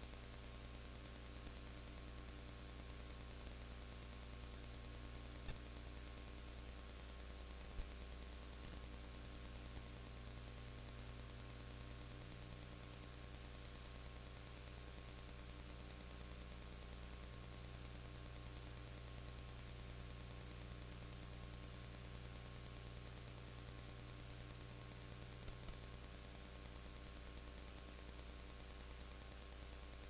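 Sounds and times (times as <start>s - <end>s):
electrical mains hum: 0.0s - 30.0s
faint clicks: 5.3s - 5.7s.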